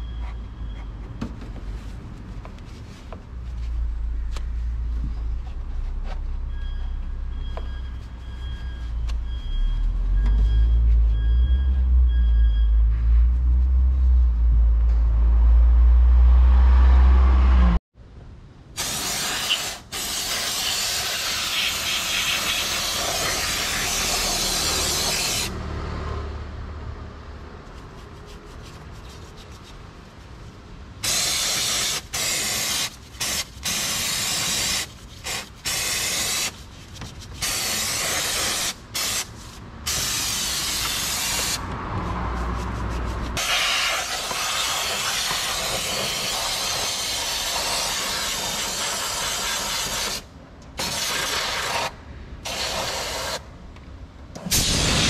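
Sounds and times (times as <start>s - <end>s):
repeated beep: 0.0s - 1.0s, 6.4s - 12.9s
short spray bursts: 18.8s - 25.5s, 31.0s - 36.6s, 37.4s - 41.6s, 42.4s - 50.2s, 50.8s - 51.9s, 52.5s - 53.4s, 54.4s - 55.0s
spraying hiss: 18.8s - 25.5s, 43.4s - 50.2s, 54.5s - 55.0s.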